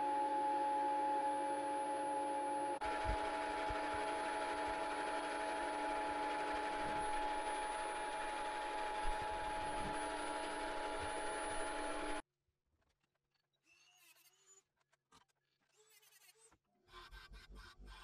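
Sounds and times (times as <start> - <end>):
milling machine whining: 0.0 - 12.2.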